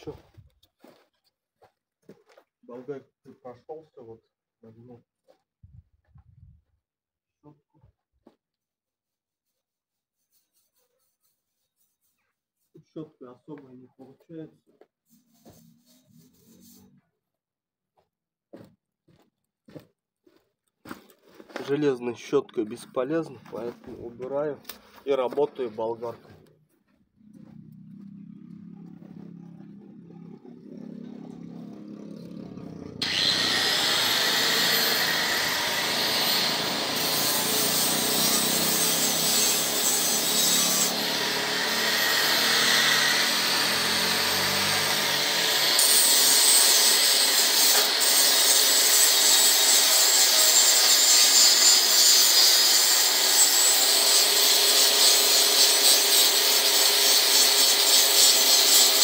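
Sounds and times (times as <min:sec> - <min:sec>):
angle grinder grinding metal: 0:15.1 - 0:17.0, 0:28.9 - 0:59.0.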